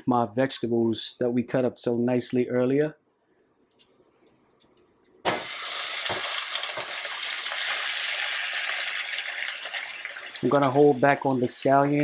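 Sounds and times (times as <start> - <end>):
vegetables sizzling in oil: 5.3 - 12.0.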